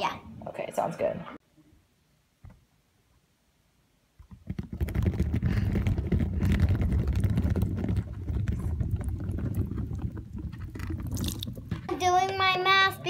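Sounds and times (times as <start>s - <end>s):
water beads clicking: 4.3s - 11.9s.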